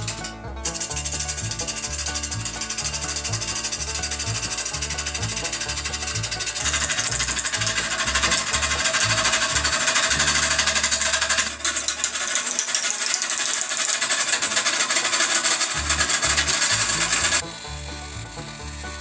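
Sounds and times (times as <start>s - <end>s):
background music with bass: 0.0s - 11.0s, 15.7s - 19.0s
lathe gouge scraping wood: 0.0s - 19.0s.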